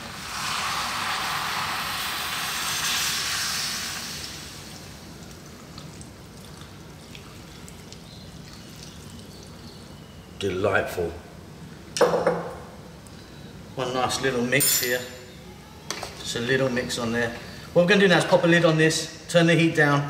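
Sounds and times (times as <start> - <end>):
liquid pouring and splashing: 0.3 - 10.0.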